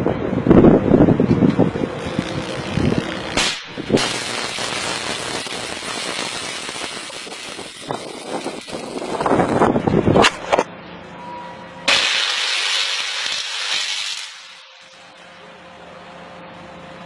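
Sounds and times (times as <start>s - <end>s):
crackling hiss of electric arcing: 2.0s - 9.8s, 11.9s - 15.3s
sharp electric snaps: 2.0s - 10.6s, 11.9s - 15.2s.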